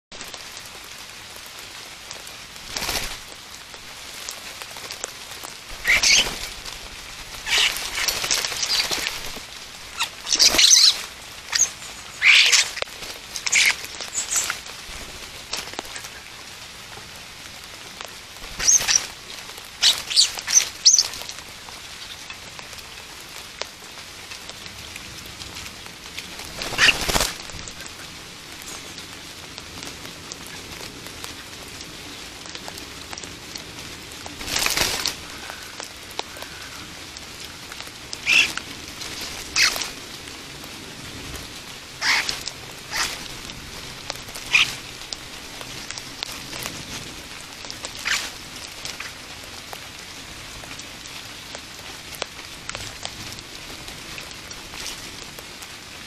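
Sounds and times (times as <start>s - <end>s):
steady rain falling: 0.1s - 56.0s
starlings calling: 5.7s - 14.7s, 18.4s - 19.2s, 19.8s - 21.3s, 26.6s - 29.0s, 38.2s - 38.6s, 39.5s - 39.9s, 42.0s - 43.2s, 44.3s - 44.9s, 48.0s - 48.3s.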